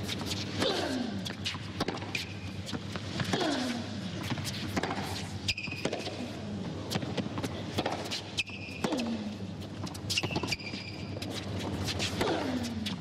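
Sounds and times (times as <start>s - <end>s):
shoe squeaks on court: 1.3s - 2.9s, 4.4s - 6.2s, 8.0s - 9.0s, 9.9s - 12.9s
tennis ball struck and bouncing: 1.8s - 2.2s, 4.7s - 6.2s.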